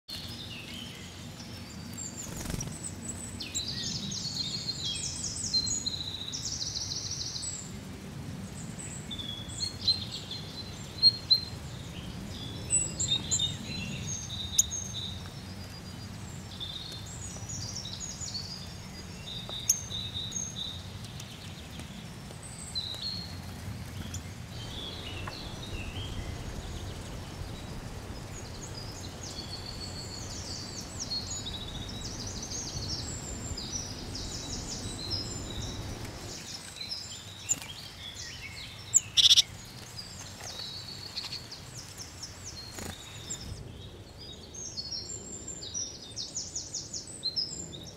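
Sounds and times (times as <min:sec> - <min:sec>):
songbirds chirping and singing: 0:00.1 - 0:47.9
low background rumble: 0:21.6 - 0:36.4.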